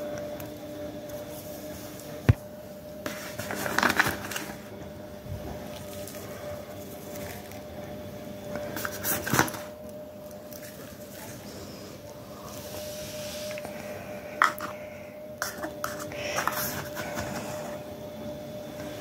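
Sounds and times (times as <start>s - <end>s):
spoon scraping plastic tub: 15.4s - 17.6s.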